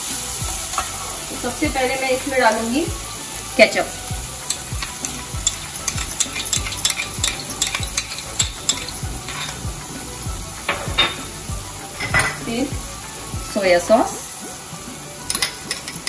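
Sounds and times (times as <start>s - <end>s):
vegetables sizzling in oil: 0.0s - 16.0s
metal spoon scraping bowl: 4.4s - 9.6s.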